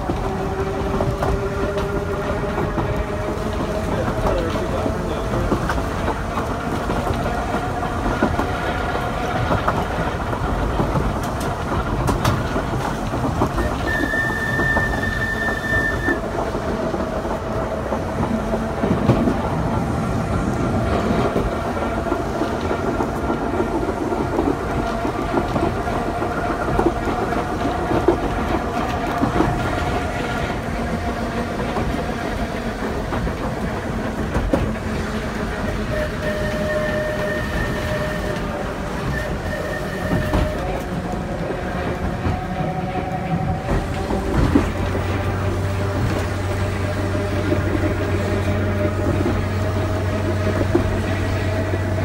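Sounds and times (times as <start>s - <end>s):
tram rumbling on rails: 0.0s - 52.0s
tram whistle toot: 13.6s - 16.3s, 35.7s - 40.9s.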